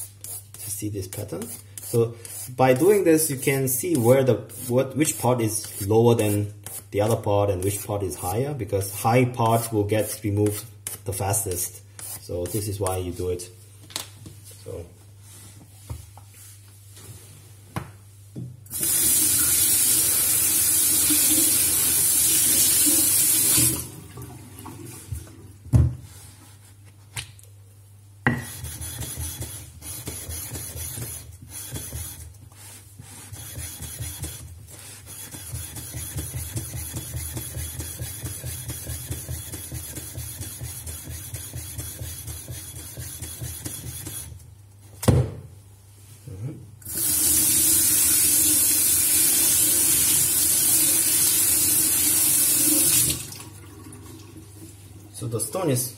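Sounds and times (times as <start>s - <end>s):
tap water running: 18.7s - 25.5s, 46.8s - 55.1s.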